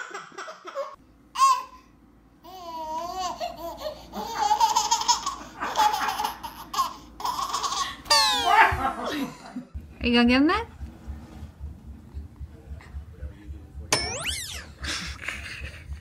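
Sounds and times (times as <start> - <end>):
toddler giggling: 2.7 - 9.2.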